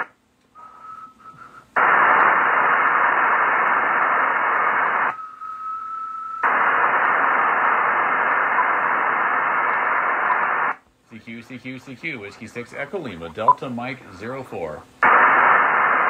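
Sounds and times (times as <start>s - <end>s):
radio hiss: 0.0s - 5.2s, 6.4s - 16.0s.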